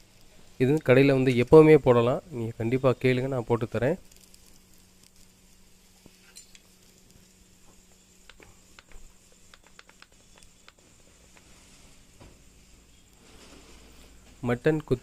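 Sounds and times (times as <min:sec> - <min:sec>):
light crackles: 0:00.0 - 0:01.9, 0:03.4 - 0:15.0
low steady hum: 0:00.0 - 0:15.0
food sizzling on a griddle: 0:04.0 - 0:08.1.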